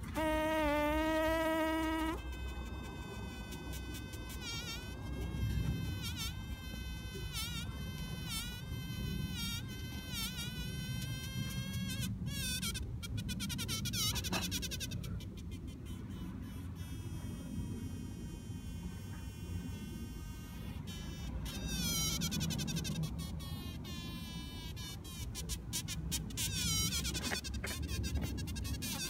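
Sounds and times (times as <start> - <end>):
bees buzzing: 0.0 - 11.8.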